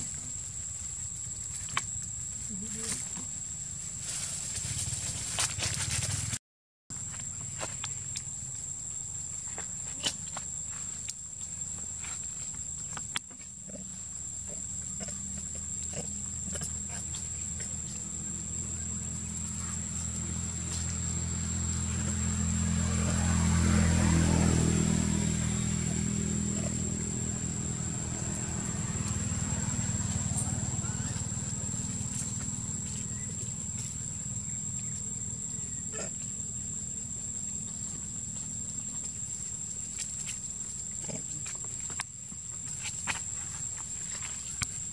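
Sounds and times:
low steady rumble: 0.0 - 42.6
high-pitched insect whine: 0.0 - 44.9
low hum: 14.0 - 39.7
macaques calling: 25.2 - 33.9.

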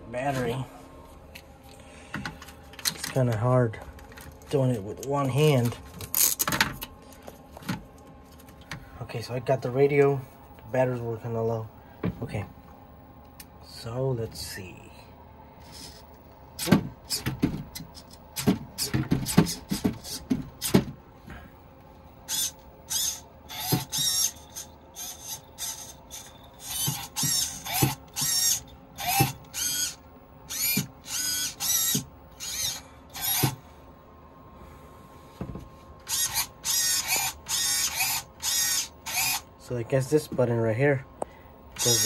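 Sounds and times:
servo clicks and knocks: 16.6 - 21.0
high-pitched servo whirs: 22.3 - 33.6, 36.0 - 39.5, 41.8 - 42.0.

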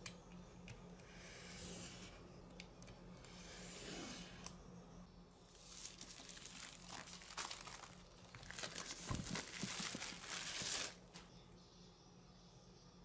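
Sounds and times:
packaging crinkling and tearing: 5.5 - 11.2.

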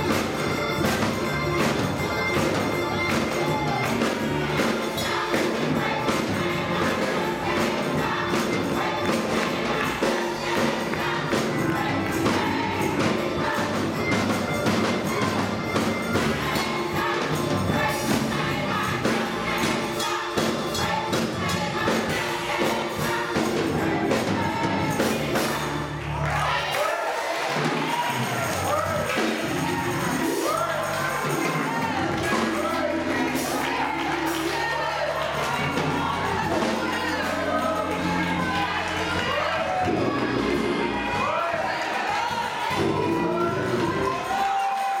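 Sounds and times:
keyboard accompaniment: 0.0 - 26.7, 27.6 - 45.0
gospel choir singing: 0.0 - 45.0
tambourine beat: 0.0 - 45.0.

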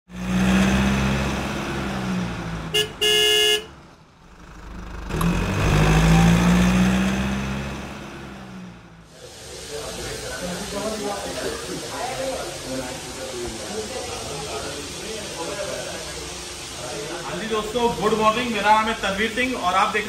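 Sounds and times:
car engine running: 0.2 - 9.1
car horn honking: 2.7 - 3.8.

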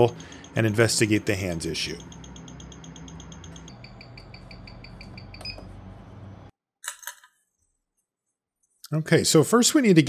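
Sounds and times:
watch ticking: 0.0 - 5.3.

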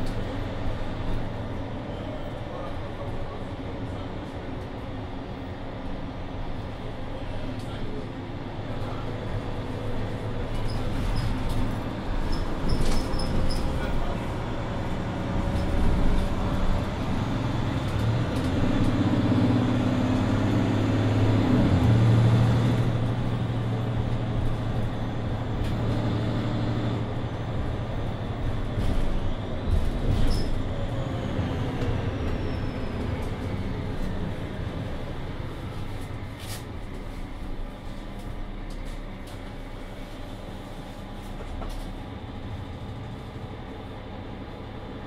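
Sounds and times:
bus diesel engine: 0.0 - 45.0.

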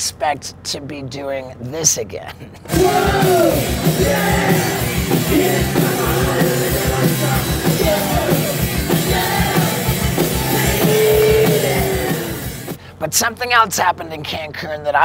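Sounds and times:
person singing: 2.7 - 12.6
bass guitar: 2.7 - 12.8
fast kick drum beat: 2.7 - 12.8
rock band playing: 2.7 - 12.8.

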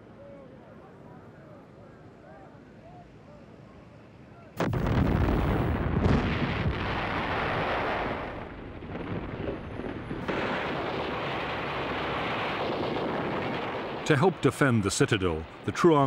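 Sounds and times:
loud blast: 4.6 - 14.5.

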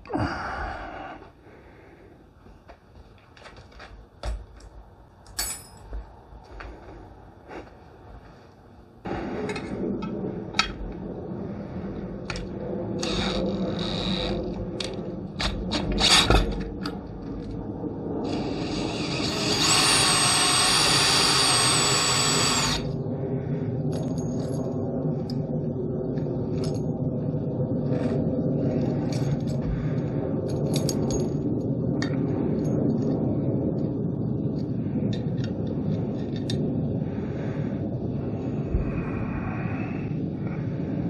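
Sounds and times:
metallic clicks and clinks: 4.5 - 5.9
drill whining: 13.0 - 14.3, 15.7 - 16.4, 18.3 - 22.9.

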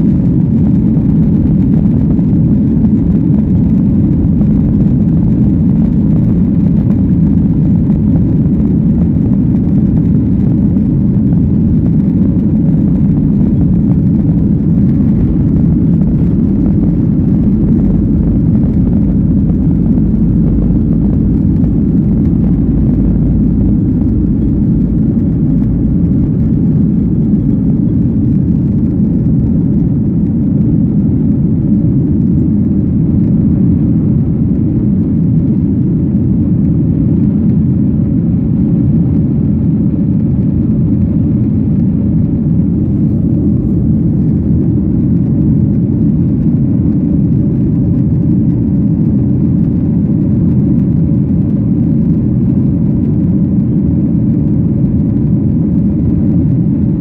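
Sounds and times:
jet engines deep rumble: 0.0 - 57.0
air rushing past fuselage: 10.9 - 31.4.

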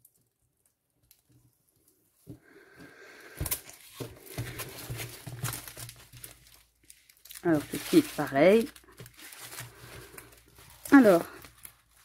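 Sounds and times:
plastic sleeve crinkling: 3.2 - 12.0.

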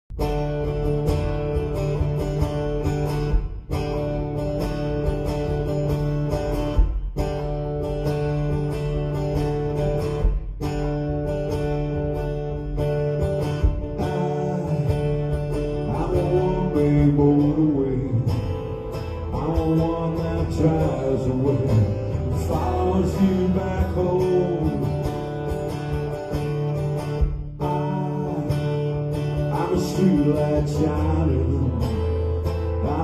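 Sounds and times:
acoustic guitar strumming: 0.1 - 33.0.

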